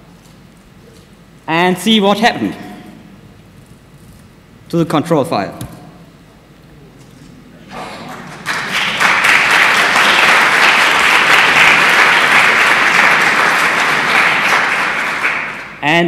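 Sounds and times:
audience applauding: 7.8 - 15.8.

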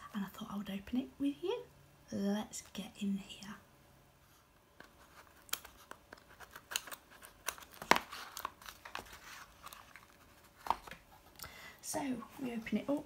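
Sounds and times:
cardboard box crackling and tearing: 5.3 - 10.9.

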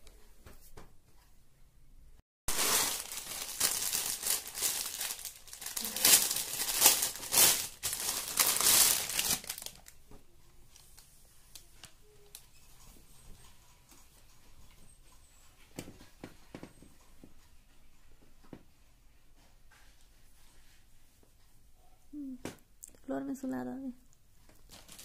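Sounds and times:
fabric handling: 2.5 - 9.9
plastic bag crinkling: 2.5 - 10.0, 24.6 - 25.0.

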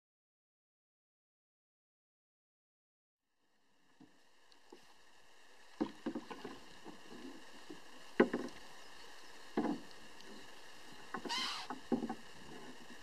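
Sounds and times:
wooden oars knocking on boat: 5.8 - 8.7, 9.4 - 13.0
oar scraping: 5.8 - 13.0.

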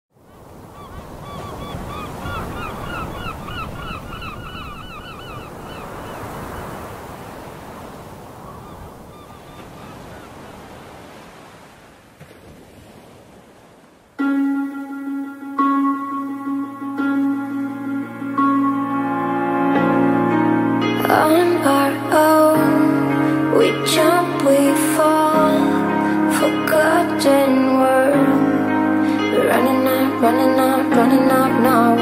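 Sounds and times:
waves rushing: 0.2 - 32.0
flock of birds calling: 0.3 - 6.9
music: 14.2 - 32.0.

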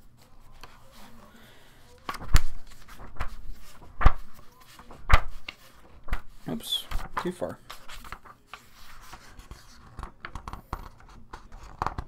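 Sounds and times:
pages rustling: 0.0 - 12.0
book thumping on desk: 2.1 - 6.3.

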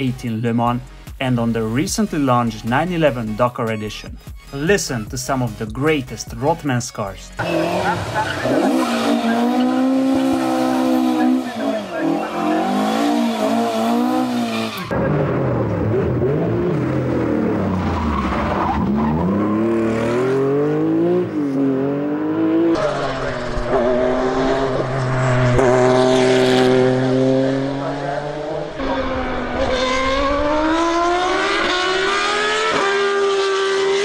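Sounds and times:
racing car engine scream: 7.4 - 21.2
race car engine high steady note: 7.4 - 34.0
race car engine revving: 7.4 - 34.0.

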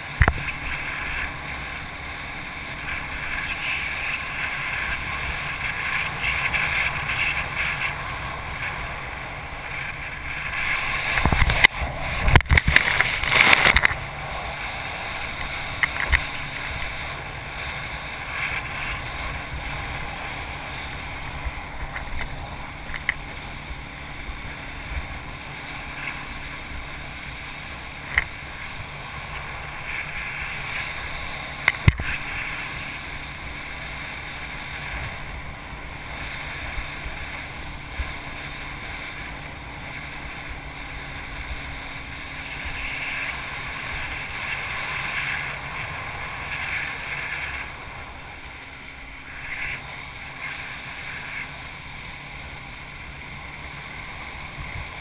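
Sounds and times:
spray and buffeting: 0.0 - 55.0
wind and water rushing: 0.0 - 55.0.

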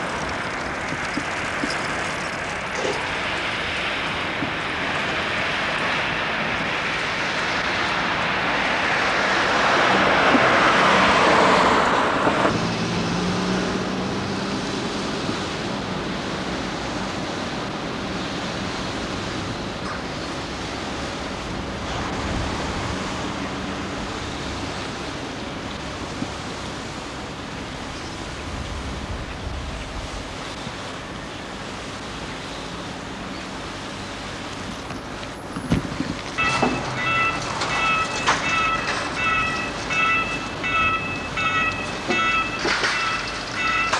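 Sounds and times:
rushing hiss of outdoor ambience: 0.0 - 43.9
vehicle passing close: 2.8 - 15.8.

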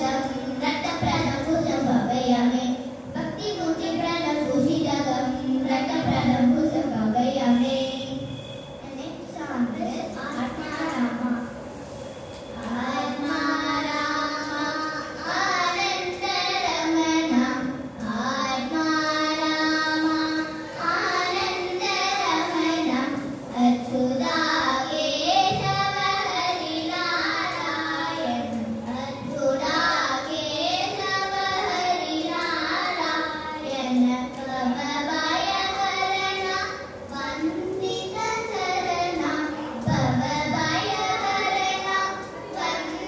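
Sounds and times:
girls singing into microphones: 12.5 - 43.0.

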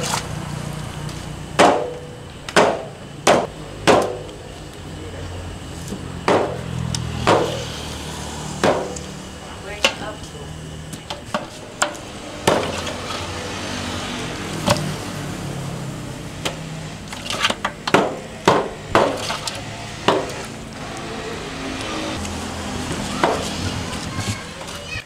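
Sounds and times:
sharp chopping strikes: 1.6 - 4.3, 6.2 - 6.6, 7.2 - 7.7, 8.6 - 9.1, 17.9 - 20.5.

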